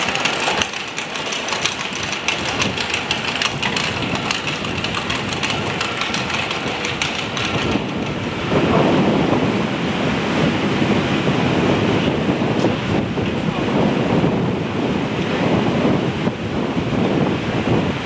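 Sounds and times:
engine idling: 0.0s - 8.4s
wind buffeting microphone: 0.0s - 18.0s.

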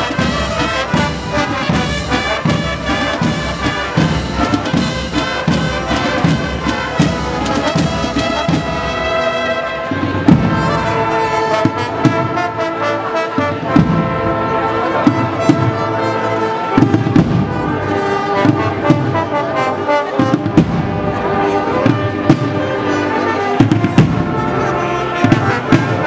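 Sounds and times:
steady drum beat: 0.0s - 12.6s, 13.4s - 15.8s, 20.2s - 22.7s
brass band playing a march: 0.0s - 26.0s.

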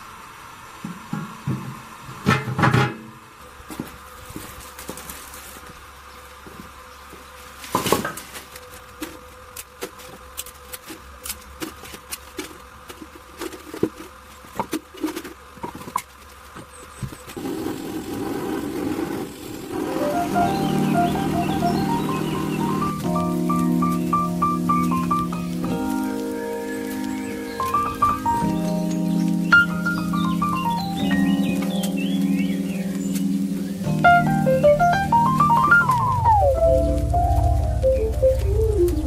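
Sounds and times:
branches cracking and clattering: 3.7s - 5.8s, 7.6s - 16.5s, 20.4s - 34.4s, 35.3s - 39.0s
gas torch hissing: 17.0s - 37.8s.

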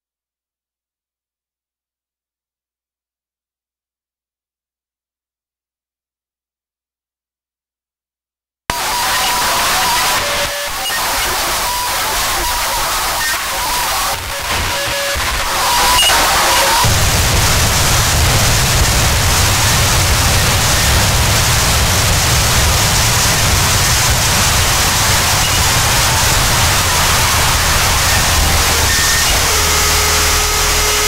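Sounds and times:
harsh static hiss noise music: 8.7s - 31.0s
heavy low rumble: 16.8s - 30.4s.

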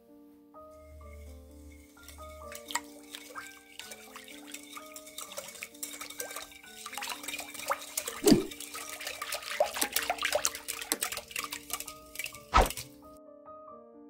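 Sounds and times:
whisk knocking on bowl: 1.0s - 13.0s
liquid sloshing: 1.0s - 13.1s
wire whisk ticking against glass: 1.6s - 12.5s.

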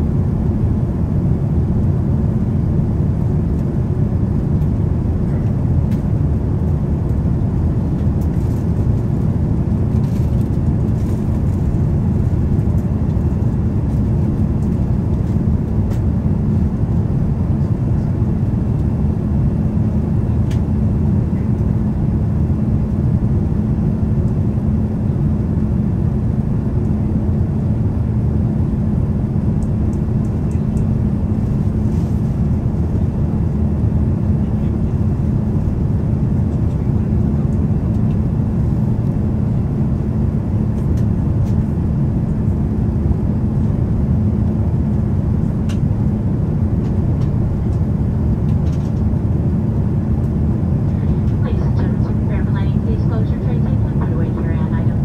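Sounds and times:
airliner cabin engine rush: 0.0s - 55.0s
even hum: 0.0s - 55.0s.

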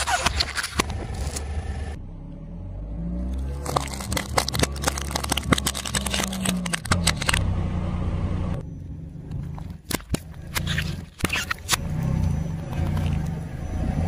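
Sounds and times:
car engine running: 0.0s - 14.0s
plastic cracking and wood snapping: 3.6s - 7.4s.

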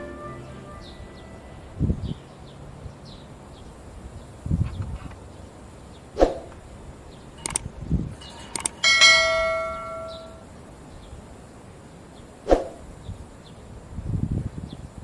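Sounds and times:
mouse clicks: 7.4s - 7.6s, 8.5s - 8.8s
notification bell ding: 8.9s - 10.4s.

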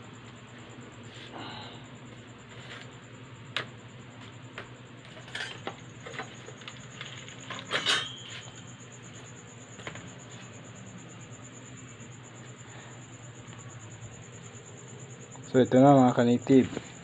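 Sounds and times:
steady low hum: 0.0s - 17.0s
eggs and trays clattering: 5.1s - 8.6s
ringing clink: 7.6s - 8.5s.

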